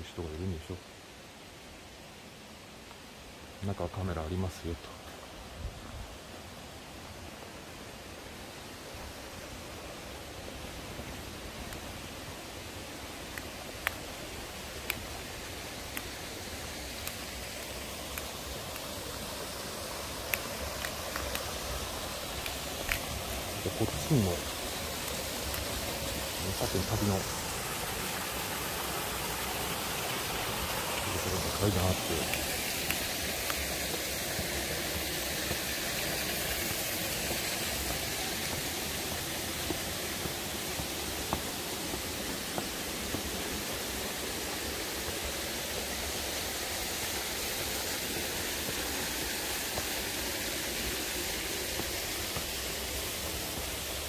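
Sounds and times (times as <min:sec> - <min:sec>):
river rushing: 0:06.1 - 0:54.0
footsteps on concrete stairs: 0:36.6 - 0:43.3.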